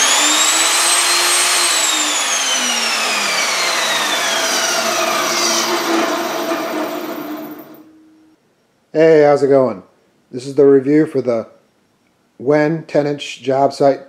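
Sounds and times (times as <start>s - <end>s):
table saw spinning down: 0.0s - 7.9s.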